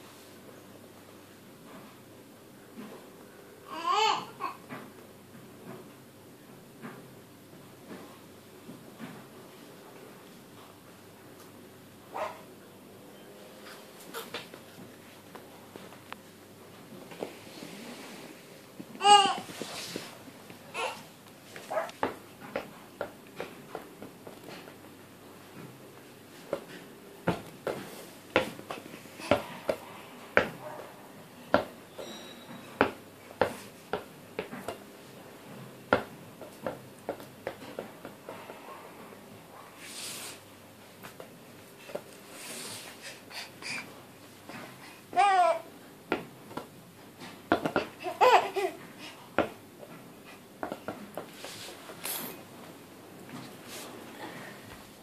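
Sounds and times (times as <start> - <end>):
faint high squeak: 31.9 - 32.8
baby squealing and laughing: 48.0 - 48.8.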